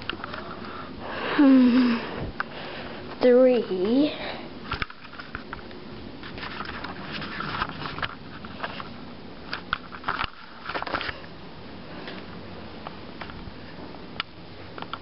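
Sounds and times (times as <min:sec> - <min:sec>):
camera handling clicks and rustling: 0:04.7 - 0:05.7, 0:09.5 - 0:11.2.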